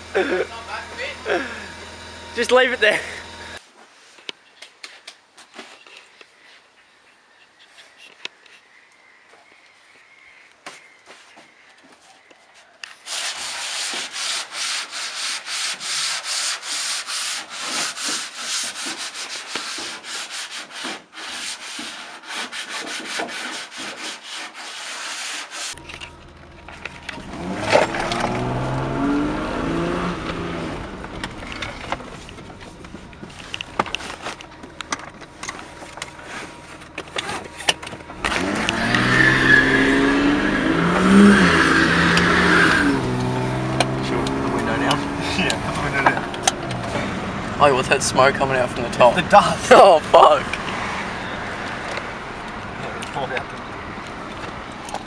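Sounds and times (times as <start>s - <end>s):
car engine accelerating: 0.0s - 3.6s, 25.8s - 55.0s
sanding rasping strokes: 13.0s - 25.8s.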